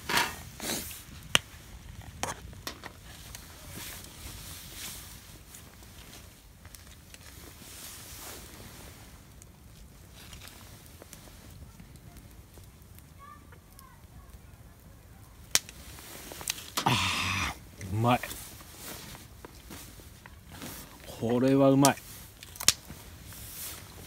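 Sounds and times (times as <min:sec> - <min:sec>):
soft rustling: 0:17.8 - 0:21.4, 0:22.0 - 0:24.0.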